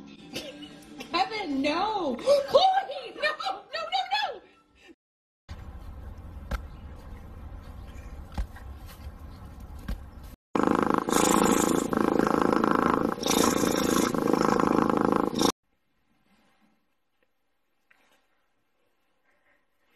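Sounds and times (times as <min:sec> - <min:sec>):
low outdoor rumble: 0:05.5 - 0:10.3.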